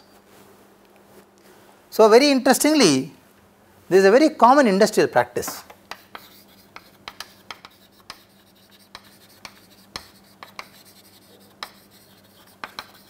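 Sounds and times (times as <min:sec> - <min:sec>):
faint steady hum: 0:00.0 - 0:13.0
chalk tapping and scratching: 0:05.4 - 0:13.0.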